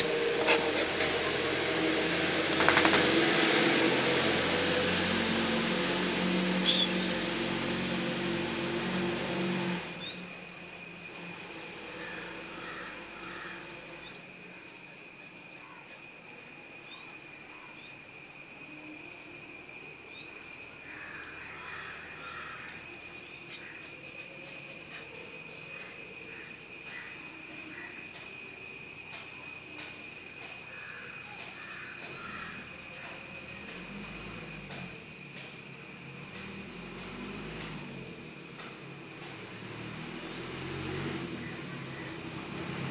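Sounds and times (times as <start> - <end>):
low machine hum: 0.0 - 14.8
high insect drone: 0.0 - 42.9
bird chirps: 6.6 - 7.0.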